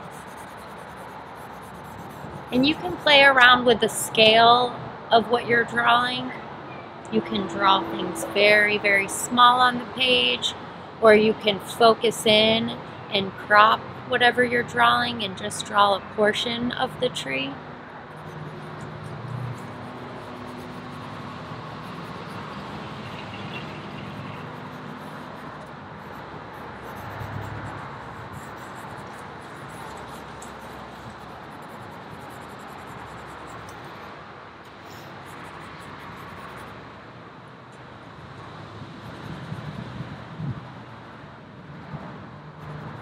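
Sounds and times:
charcoal scratching on paper: 0.0s - 3.1s, 18.1s - 34.1s, 34.8s - 36.8s
road traffic: 0.0s - 43.0s
car passing: 17.4s - 37.1s.

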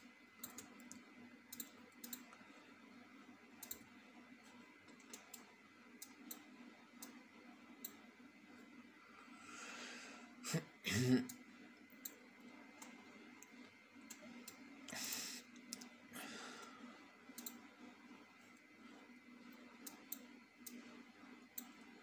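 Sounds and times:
faint steady hum: 0.0s - 22.0s
computer mouse clicking: 0.4s - 2.4s, 3.6s - 7.2s, 7.8s - 8.0s, 11.3s - 14.6s, 15.5s - 15.9s, 17.3s - 17.6s, 19.4s - 20.9s, 21.5s - 21.8s.

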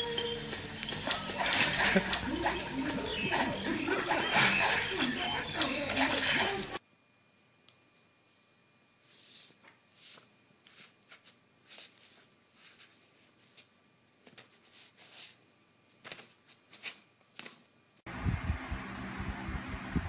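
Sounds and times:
low rumbling hum with thumps: 18.1s - 20.0s.

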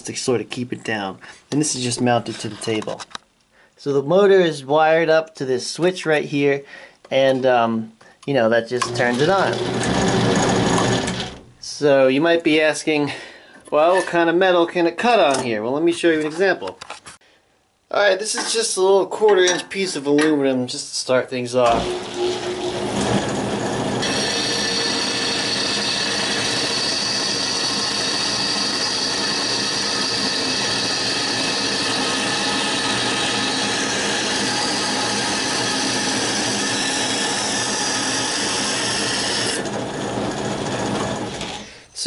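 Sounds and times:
bandsaw running: 8.8s - 11.4s, 21.6s - 41.8s
saw blade cutting metal: 8.9s - 11.4s, 21.7s - 41.7s.

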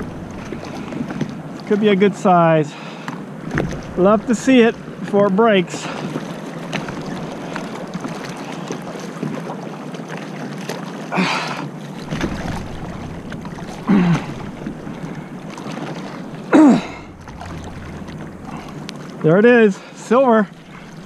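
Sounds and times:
wind on microphone: 0.0s - 1.6s, 12.0s - 19.2s
water sloshing against board: 0.0s - 21.0s
person straining grunt: 16.5s - 17.1s.

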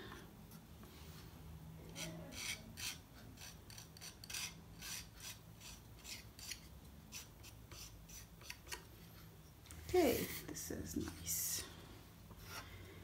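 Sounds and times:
palette knife scraping paint: 1.9s - 9.2s.

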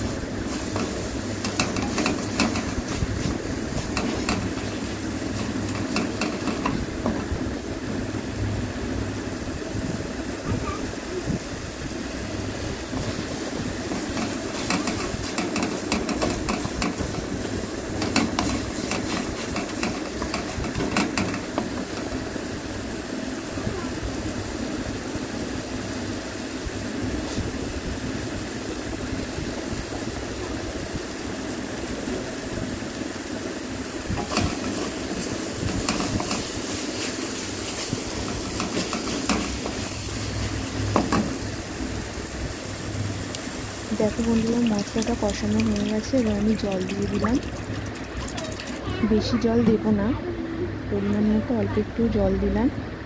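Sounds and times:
masala sizzling: 0.0s - 52.7s
spatula scraping a pan: 0.5s - 6.8s, 13.9s - 17.2s, 34.2s - 39.9s.

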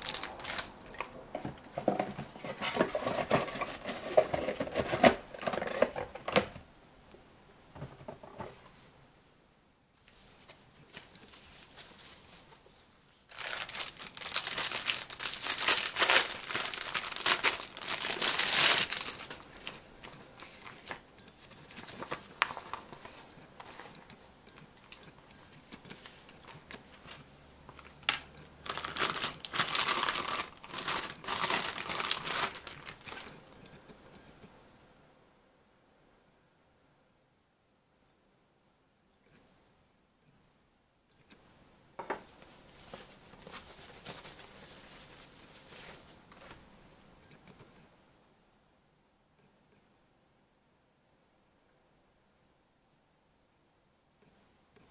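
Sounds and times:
plastic bags crinkling: 0.0s - 1.2s, 13.3s - 21.1s, 27.8s - 33.4s
handling sounds: 0.0s - 6.6s, 10.0s - 34.2s, 42.0s - 46.7s.

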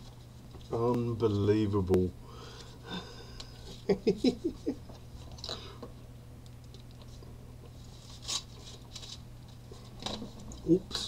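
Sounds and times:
paper rustling and crinkling: 7.8s - 10.7s.

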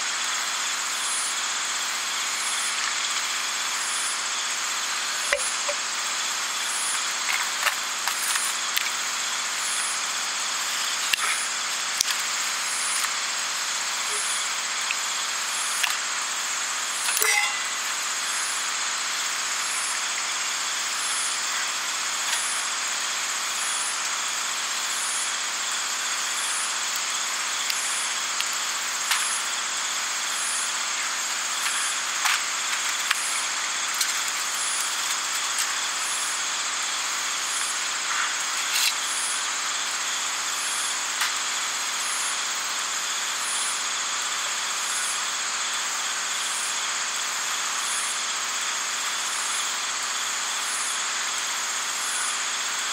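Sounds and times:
even hiss: 0.0s - 52.9s
night insects trilling: 0.1s - 52.9s
high chirp: 17.1s - 17.9s.

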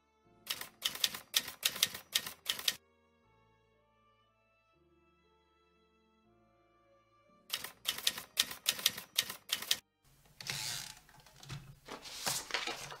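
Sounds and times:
typewriter keys striking: 0.5s - 2.8s, 7.5s - 9.8s.

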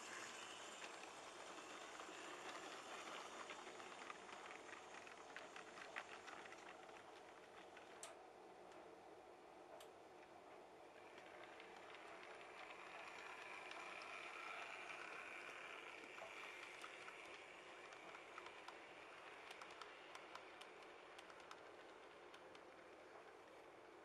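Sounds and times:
model train motor whirring: 0.0s - 8.2s, 10.9s - 24.0s
wheels clicking over rail joints: 10.9s - 23.8s.

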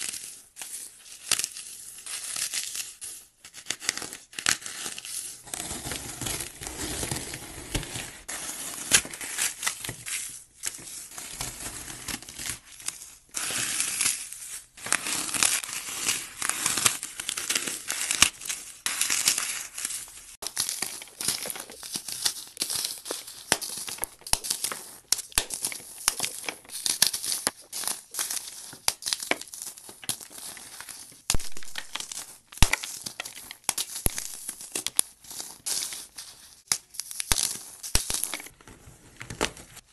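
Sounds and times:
floral foam crushed in hands: 13.3s - 38.6s.

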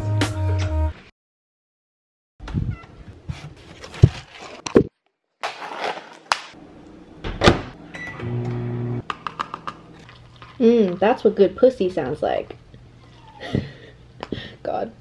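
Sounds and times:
foil lid crinkling: 5.4s - 6.4s
paper cup clicking and knocking: 9.0s - 9.8s.

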